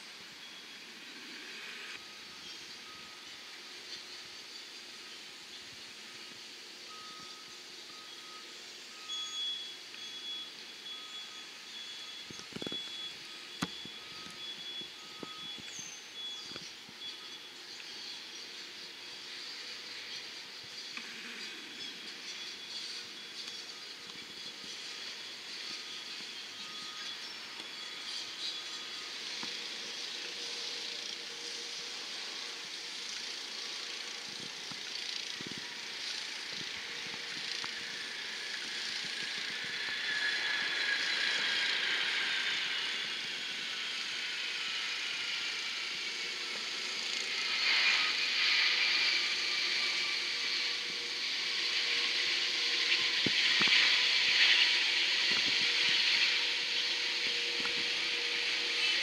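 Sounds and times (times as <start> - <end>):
whining tones sliding down: 0.0 - 59.0
jet engines whining: 17.9 - 59.0.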